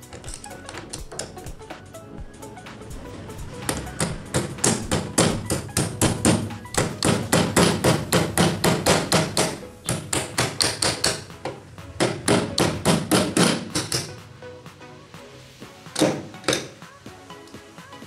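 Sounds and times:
rapid knocking on wood: 0:03.6 - 0:14.2.

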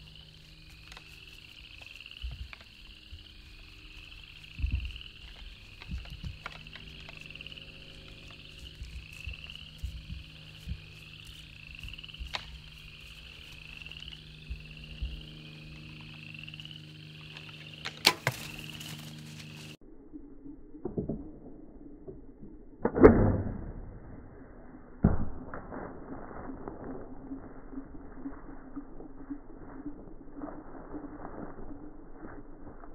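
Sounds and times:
faint rising chirps: 0:00.0 - 0:20.8.

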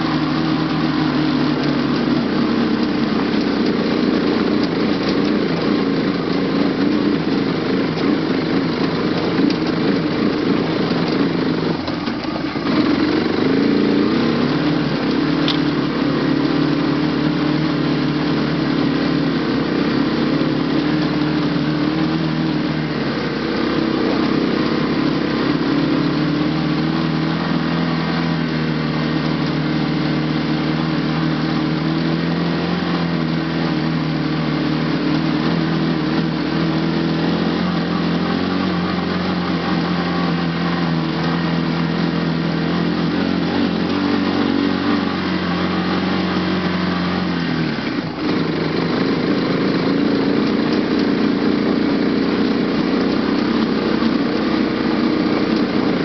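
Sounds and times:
quad bike engine under load: 0:00.0 - 0:56.0.

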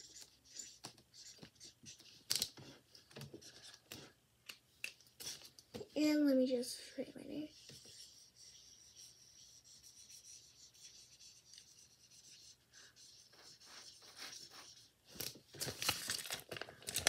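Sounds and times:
marker pen scratching on paper: 0:00.0 - 0:04.2, 0:05.2 - 0:05.5, 0:07.4 - 0:15.4.

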